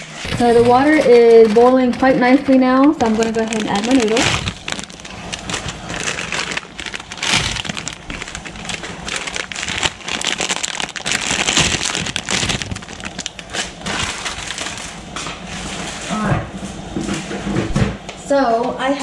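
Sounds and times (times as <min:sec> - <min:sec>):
plastic packets crinkling: 0:00.3 - 0:16.0
water bubbling: 0:03.1 - 0:14.7.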